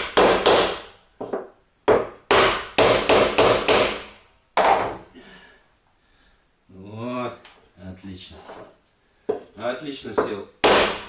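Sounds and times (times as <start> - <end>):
wooden panel knocks: 4.6 - 5.0.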